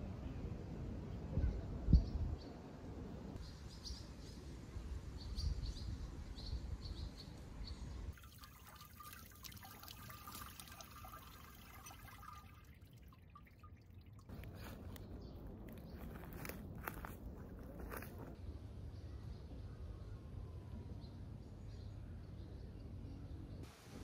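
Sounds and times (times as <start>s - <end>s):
water running from tap splashing: 8.2s - 14.3s
birds chirping: 10.0s - 18.3s
low outdoor rumble: 13.0s - 23.3s.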